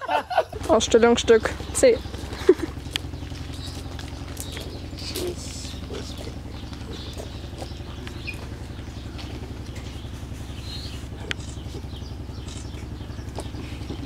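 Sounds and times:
motor droning: 0.0 - 14.0
sharp click: 12.4 - 12.8.

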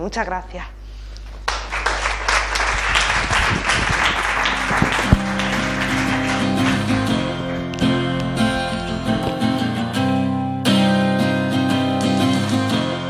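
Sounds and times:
audience applauding: 1.4 - 8.0
outro music: 4.1 - 13.0.

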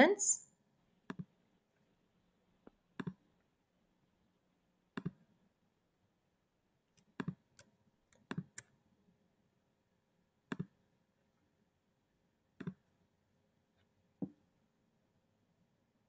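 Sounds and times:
computer mouse clicks: 1.1 - 1.3, 7.0 - 8.7, 10.5 - 10.8.

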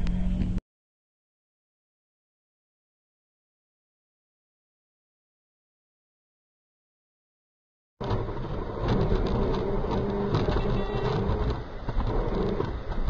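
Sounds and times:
car engine drone inside cabin: 0.0 - 0.6, 8.0 - 13.0.

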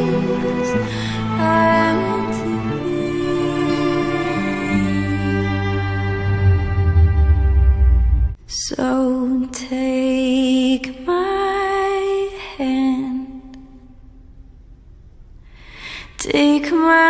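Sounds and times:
person singing with vibrato: 0.0 - 7.4
singer breathing: 15.4 - 16.2.

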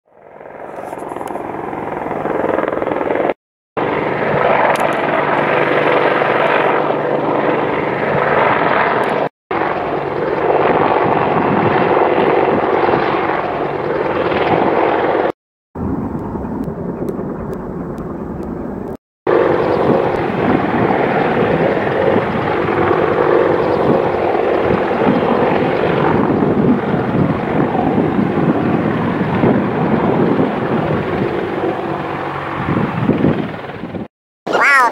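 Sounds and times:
helicopter thudding hum: 0.3 - 34.1.

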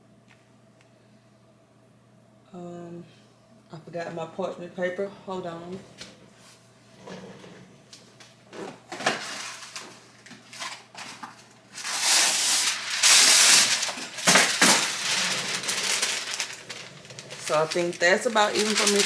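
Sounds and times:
paper crinkling and rustling: 8.9 - 19.0.

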